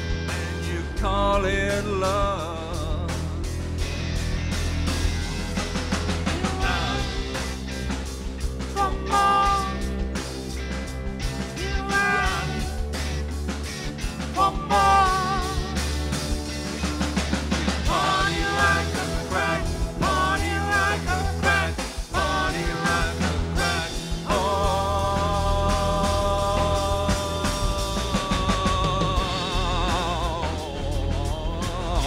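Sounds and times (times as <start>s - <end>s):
bending lead guitar line: 0.0s - 32.0s
live rock band playing: 0.0s - 32.0s
rhythmic high ticking: 3.9s - 32.0s.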